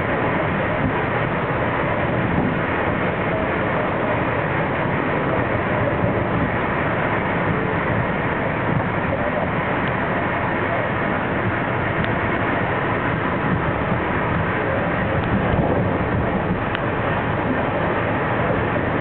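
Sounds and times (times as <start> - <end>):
train running at speed: 0.0 - 19.0.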